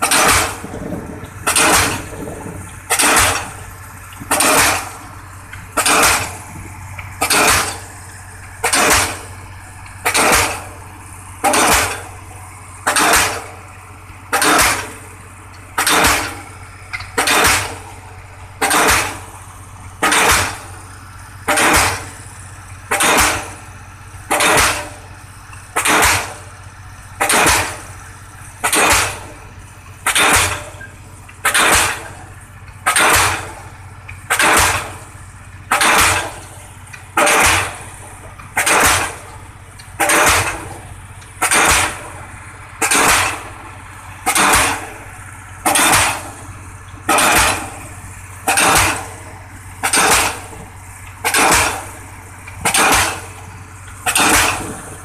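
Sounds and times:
pile-driving hammer striking: 0:00.0 - 0:00.7, 0:01.4 - 0:02.2, 0:02.9 - 0:03.6, 0:04.2 - 0:05.0, 0:05.8 - 0:06.4, 0:07.2 - 0:07.9, 0:08.6 - 0:09.3, 0:10.0 - 0:10.8, 0:11.4 - 0:12.1, 0:12.9 - 0:13.5, 0:14.4 - 0:15.0, 0:18.6 - 0:19.2, 0:20.0 - 0:20.6, 0:21.5 - 0:22.1, 0:24.3 - 0:25.0, 0:25.8 - 0:26.4, 0:27.2 - 0:27.8, 0:28.6 - 0:29.3, 0:30.1 - 0:30.8, 0:31.4 - 0:32.2, 0:32.9 - 0:33.6, 0:34.3 - 0:35.0, 0:35.7 - 0:36.4, 0:37.2 - 0:37.8, 0:38.6 - 0:39.3, 0:40.0 - 0:40.8, 0:41.4 - 0:42.2, 0:42.8 - 0:43.5, 0:44.3 - 0:45.0, 0:45.6 - 0:46.4, 0:47.1 - 0:47.8, 0:48.5 - 0:49.2, 0:49.8 - 0:50.6, 0:51.2 - 0:52.0, 0:52.6 - 0:53.4, 0:54.1 - 0:54.8
pile rig engine drone: 0:00.0 - 0:55.0.

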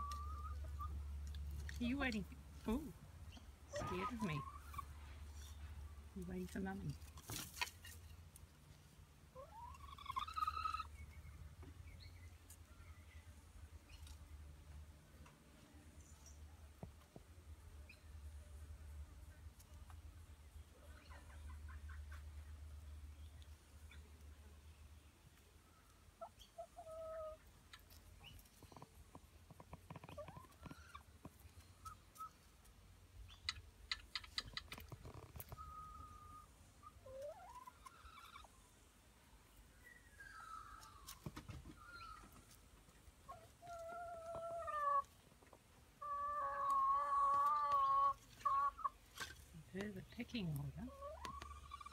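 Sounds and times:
hens clucking softly: 0:00.0 - 0:01.8, 0:02.7 - 0:06.0, 0:06.9 - 0:11.8, 0:19.5 - 0:24.4, 0:25.3 - 0:49.8, 0:50.4 - 0:51.9.

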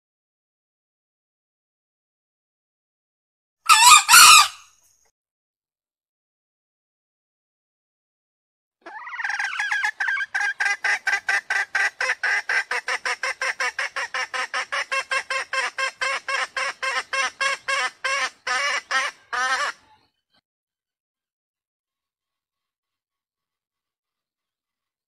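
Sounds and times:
junglefowl calling: 0:03.7 - 0:04.7, 0:08.8 - 0:20.0.

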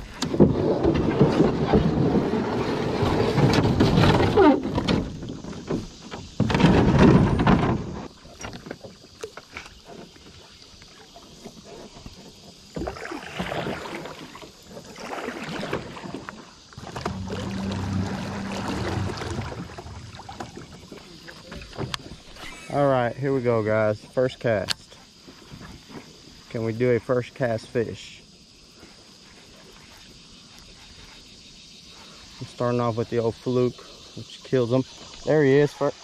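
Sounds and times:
kayak handling rustle and knocks: 0:00.0 - 0:27.7
water wash: 0:12.9 - 0:22.0.

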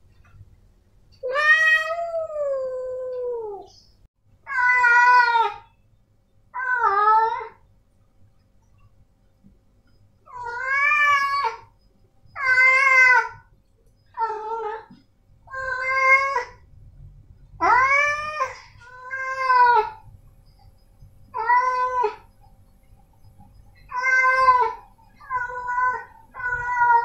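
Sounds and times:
cat meowing loudly: 0:17.6 - 0:20.0, 0:23.9 - 0:27.0.

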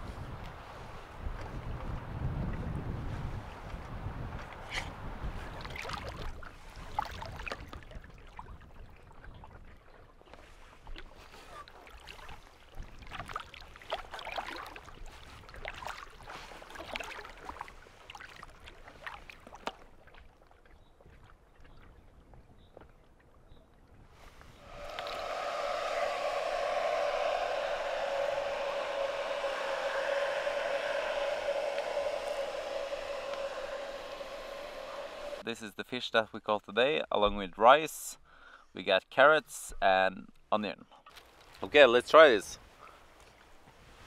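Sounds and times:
wind rumble on microphone: 0:00.0 - 0:09.8, 0:24.1 - 0:35.4.

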